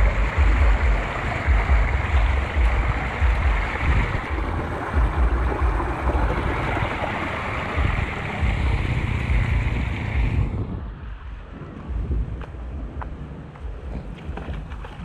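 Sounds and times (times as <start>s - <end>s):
floodwater rushing into a drain: 0.0s - 10.6s
wind buffeting microphone: 0.0s - 15.0s.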